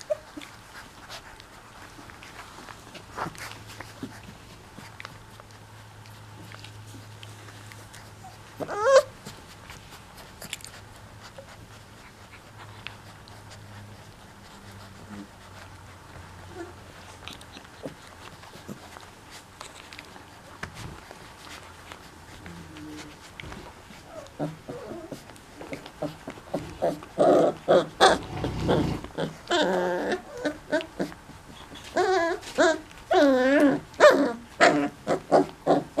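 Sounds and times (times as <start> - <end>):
puppies yipping and barking: 0.0 - 2.4, 8.0 - 9.6, 23.9 - 36.0
puppy whining: 0.0 - 36.0.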